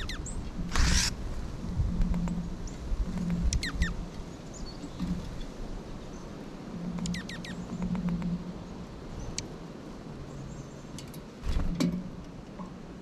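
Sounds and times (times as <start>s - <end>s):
songbirds calling: 0.0s - 12.9s
wind rumbling on microphone: 0.0s - 13.0s.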